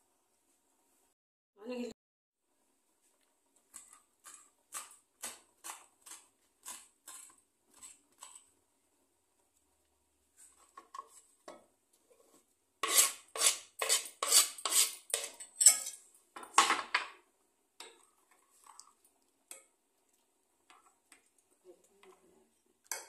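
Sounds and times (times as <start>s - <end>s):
knife scraping strokes: 5.6s - 8.4s, 12.8s - 15.4s.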